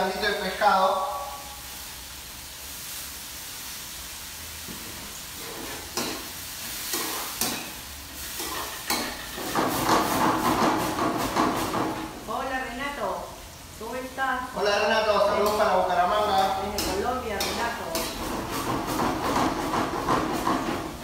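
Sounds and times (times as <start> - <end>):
vegetables sizzling in pan: 0.0 - 21.0
metal ladle scraping pan: 5.4 - 11.6, 15.3 - 20.9.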